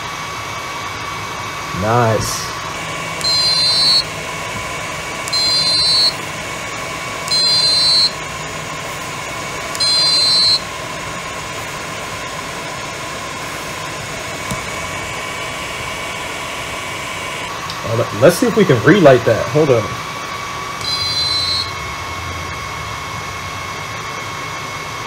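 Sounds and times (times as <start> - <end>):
whirring hum: 0.0 - 25.0
high-pitched buzzer beeps: 3.2 - 4.2, 5.3 - 6.2, 7.3 - 8.2, 9.8 - 10.7, 20.8 - 21.8.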